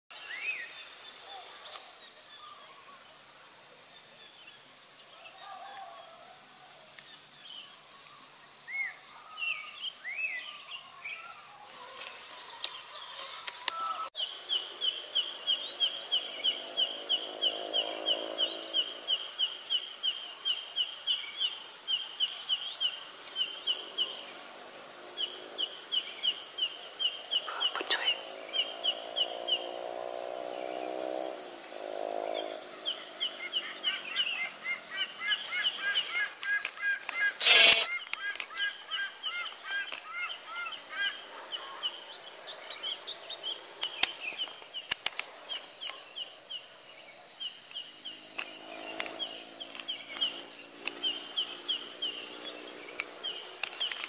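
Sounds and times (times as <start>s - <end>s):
insect drone: 0.1s - 54.0s
bird calls: 25.2s - 29.7s, 32.3s - 54.0s
low drawn-out bird call: 32.9s - 41.9s.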